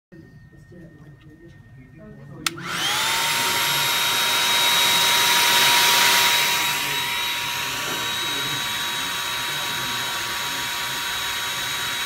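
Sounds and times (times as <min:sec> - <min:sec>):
hair dryer switch click: 0:02.4 - 0:03.2
hair dryer motor whining: 0:02.4 - 0:12.0.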